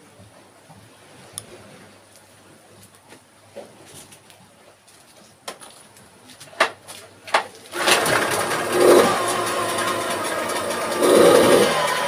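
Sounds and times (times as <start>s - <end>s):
outboard motor running: 7.7s - 12.0s.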